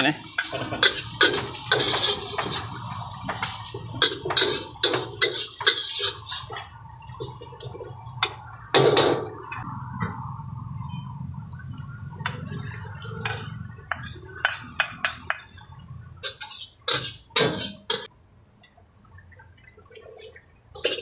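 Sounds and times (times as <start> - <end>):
ladles scraping a wok: 0.2 - 8.0, 16.2 - 18.1, 20.1 - 21.0.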